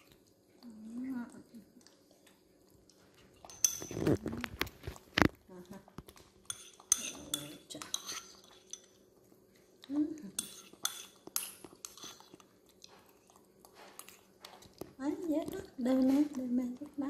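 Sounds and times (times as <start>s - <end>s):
spoon scraping ceramic bowl: 3.5s - 5.3s, 6.4s - 9.0s, 10.3s - 12.5s, 13.8s - 14.4s.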